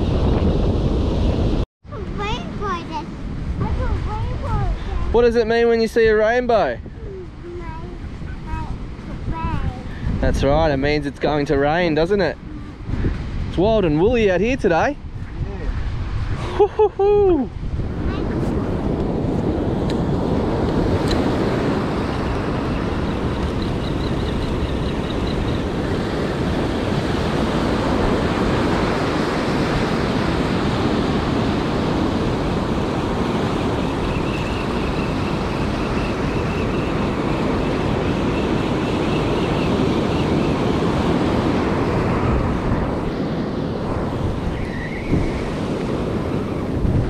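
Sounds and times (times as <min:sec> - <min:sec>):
strong wind on microphone: 0:00.0 - 0:47.0
waves breaking on beach: 0:11.3 - 0:47.0.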